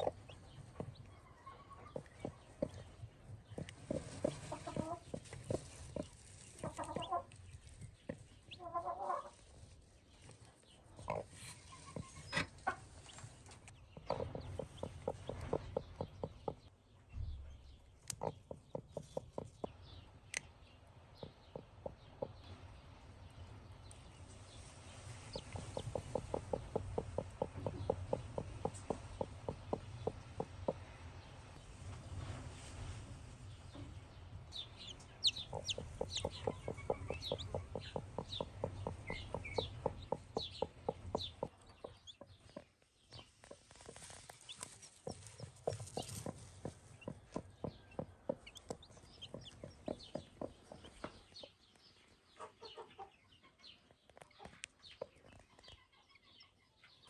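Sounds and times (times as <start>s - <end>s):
hen clucking: 0.0s - 9.7s, 10.8s - 16.7s, 18.1s - 20.0s, 21.2s - 22.5s, 25.0s - 31.2s, 34.6s - 51.6s, 52.3s - 53.6s
chicks peeping: 0.0s - 32.0s, 32.6s - 57.0s.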